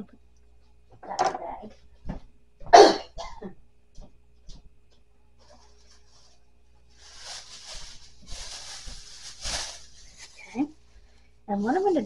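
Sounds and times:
faint plastic crinkle: 0:05.4 - 0:12.0
plastic bag rustling: 0:05.4 - 0:12.0.

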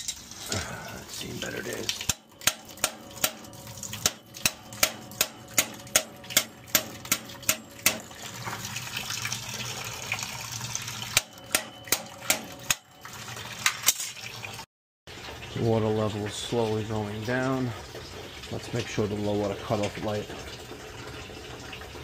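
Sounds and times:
water pouring into plastic bucket: 0:00.2 - 0:11.2.

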